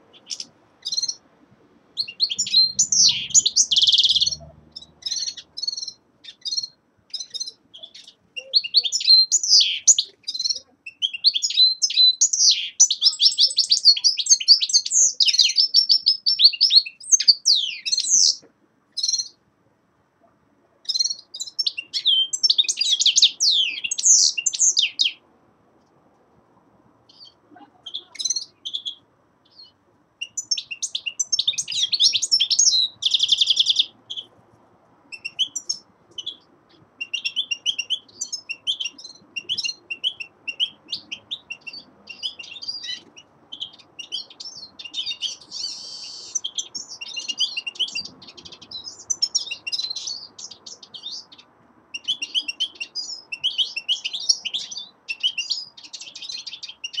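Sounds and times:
goldfinch twittering song: 0.1 - 1.2, 2.0 - 18.4, 19.0 - 19.4, 20.8 - 25.2, 27.1 - 34.3, 35.1 - 57.0
buzzy bird trill: 2.0 - 18.4.

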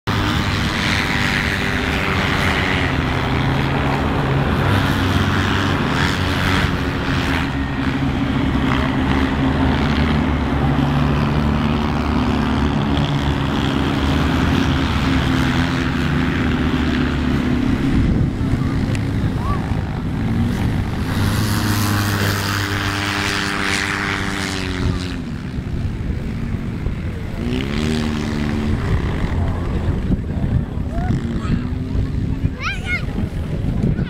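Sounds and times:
utility vehicle engines idling: 0.1 - 24.1.

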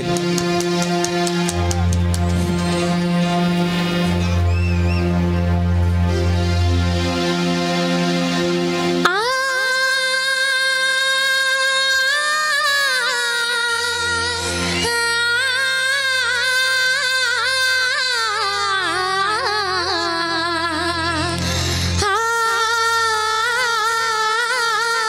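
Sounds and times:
low held accompaniment: 0.0 - 25.0
woman singing into a microphone: 9.0 - 25.0.

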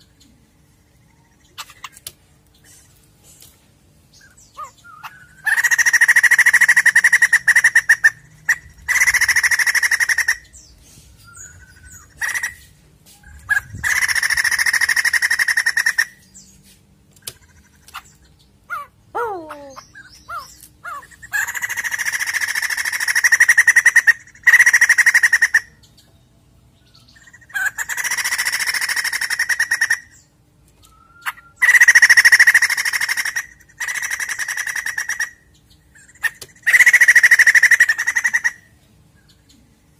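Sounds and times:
bird buzzy chattering calls: 4.1 - 10.7, 11.3 - 16.5, 17.2 - 25.8, 27.1 - 30.3, 31.1 - 38.8.

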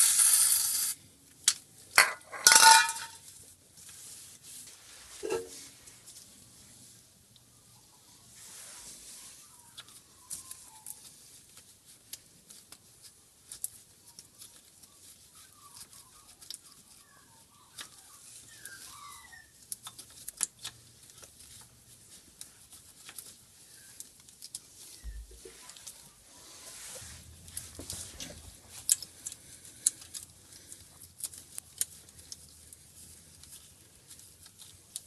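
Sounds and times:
faint rustling: 2.3 - 19.0, 20.8 - 35.0
rag wiping and scrubbing: 4.0 - 5.8, 25.0 - 28.8.

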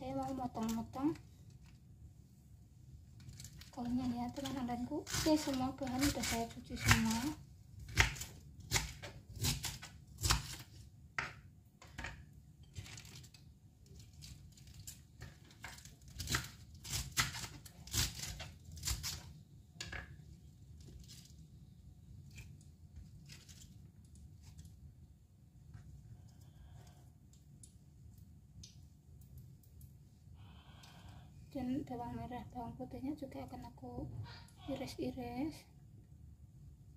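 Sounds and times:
knife slicing cabbage on board: 5.0 - 10.8, 15.7 - 19.3.

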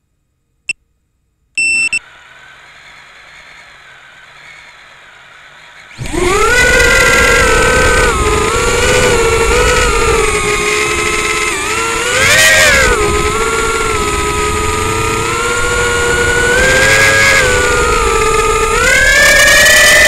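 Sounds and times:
short beeps: 1.6 - 2.0
drone motors whining: 1.6 - 20.0.

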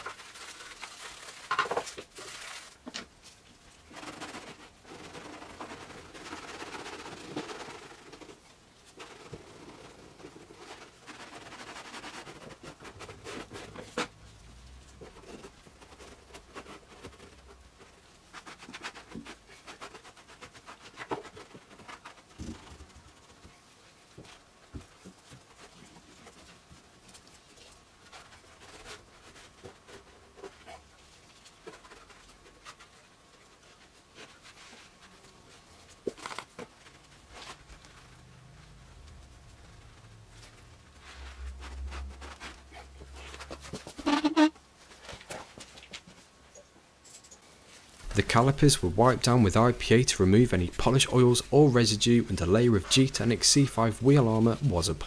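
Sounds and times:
scratchy rubbing inside wheel arch: 38.8 - 44.7.

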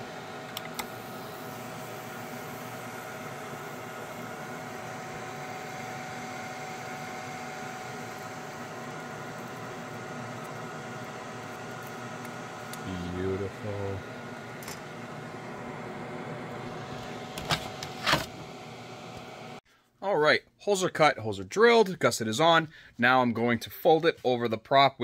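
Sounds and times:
extraction fan whining: 0.0 - 19.6.

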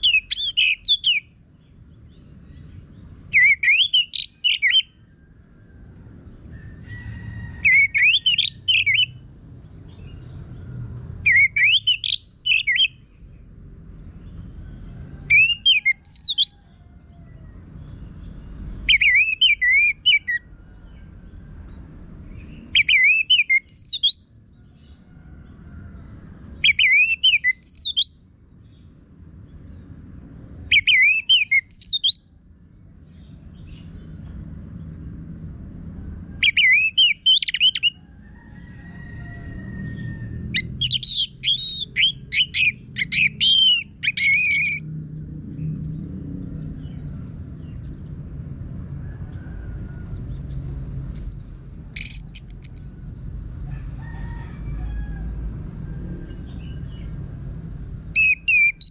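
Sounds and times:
thrush singing whistles: 0.0 - 1.3, 3.3 - 5.0, 7.6 - 9.2, 11.2 - 13.0, 15.3 - 16.6, 18.9 - 20.4, 22.7 - 24.3, 26.6 - 28.2, 30.7 - 32.3, 36.4 - 38.0, 40.6 - 44.8, 51.2 - 52.9, 58.2 - 58.9.

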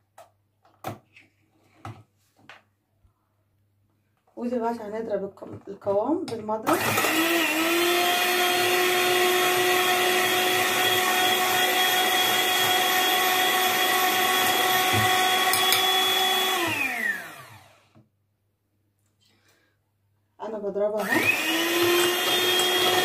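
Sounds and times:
electric hand mixer whining: 6.6 - 18.0, 21.0 - 23.0.

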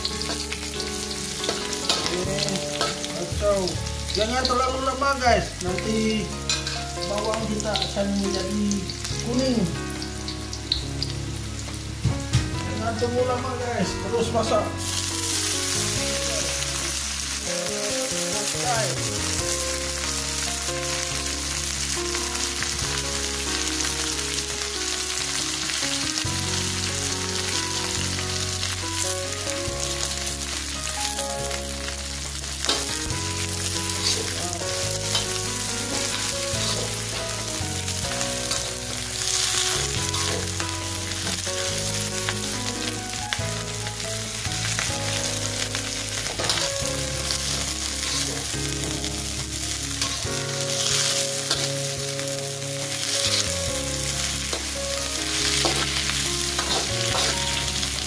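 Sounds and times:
hot oil sizzling: 0.0 - 58.0
metal spatula scraping wok: 50.8 - 51.9, 53.0 - 53.7, 55.3 - 57.8.

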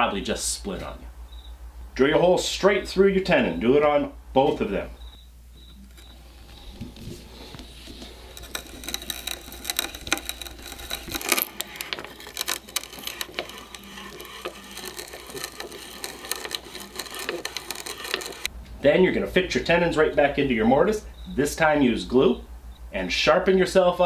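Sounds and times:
auger bit boring through wood: 5.9 - 18.5.

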